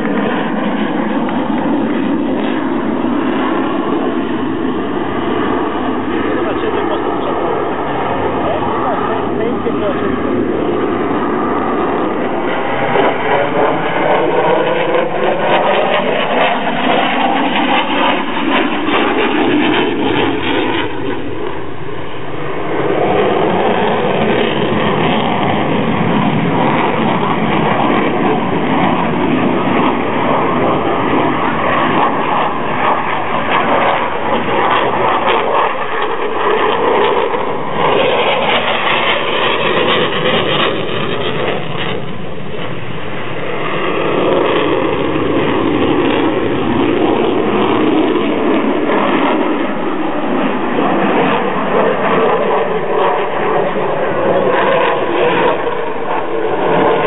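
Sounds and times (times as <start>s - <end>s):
jet engine roar: 0.0s - 57.0s.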